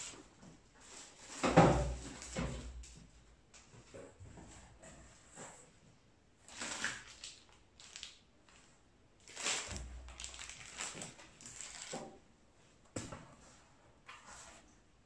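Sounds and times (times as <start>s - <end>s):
packaging rustling and crinkling: 6.5s - 12.2s.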